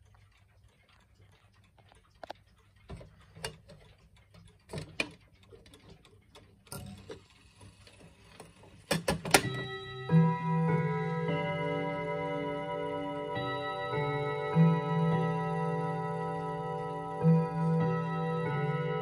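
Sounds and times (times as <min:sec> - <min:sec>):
clicks and knocks of clock bezel: 0:00.0 - 0:09.8
clock ticking faintly: 0:00.0 - 0:19.0.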